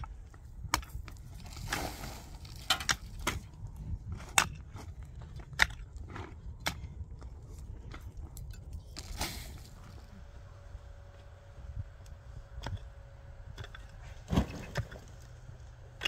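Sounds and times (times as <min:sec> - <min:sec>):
mattock striking stony soil: 0:00.7 - 0:06.8.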